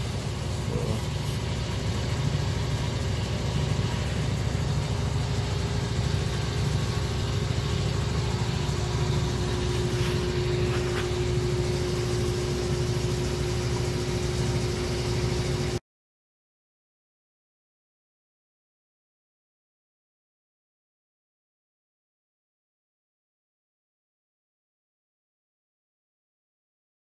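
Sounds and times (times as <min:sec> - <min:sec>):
truck engine idling: 0:00.0 - 0:15.8.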